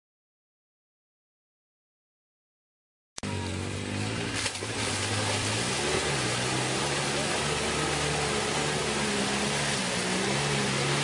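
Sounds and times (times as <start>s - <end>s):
off-road vehicle engine revving: 3.2s - 11.0s.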